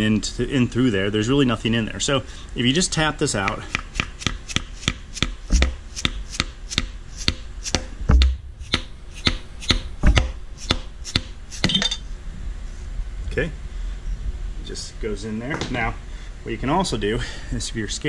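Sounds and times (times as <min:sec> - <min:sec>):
hammer tapping on metal: 0:06.4 - 0:12.0.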